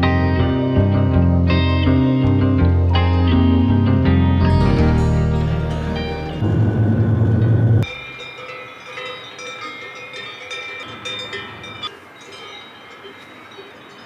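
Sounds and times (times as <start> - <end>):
music: 0.0 - 7.9
livestock bells clanking: 4.6 - 6.8, 7.8 - 14.0.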